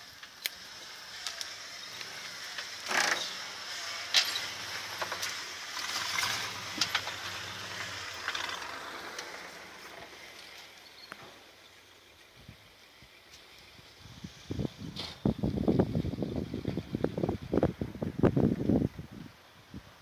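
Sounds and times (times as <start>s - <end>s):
tyres crunching over gravel: 0.0s - 12.1s
truck engine humming low: 0.0s - 20.0s.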